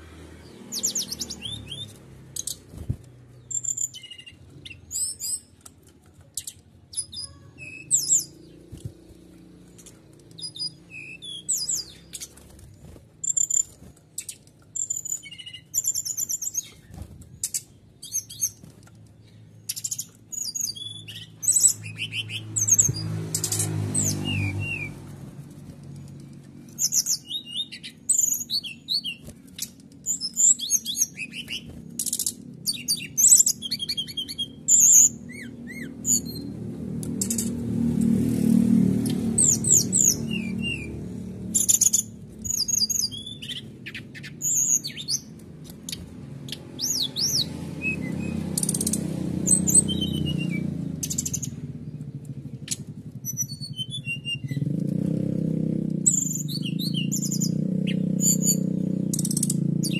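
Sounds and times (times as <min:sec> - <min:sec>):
bird singing rapid trills: 0:00.0 - 0:59.9.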